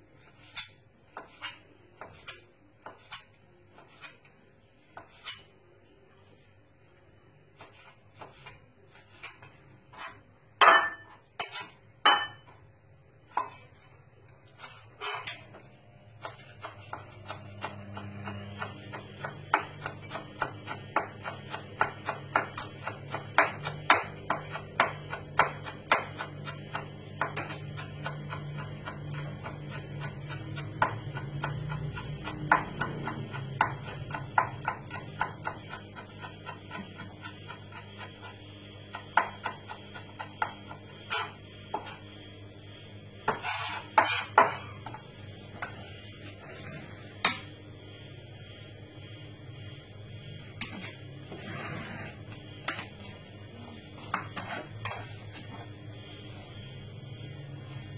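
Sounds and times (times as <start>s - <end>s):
knife chopping on cutting board: 16.2s - 42.0s, 43.2s - 45.0s.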